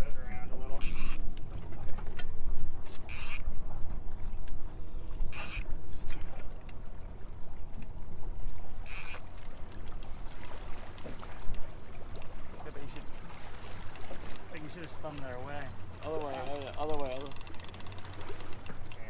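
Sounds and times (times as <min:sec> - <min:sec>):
water sloshing underwater: 0:00.0 - 0:19.0
short splashes: 0:08.5 - 0:18.9.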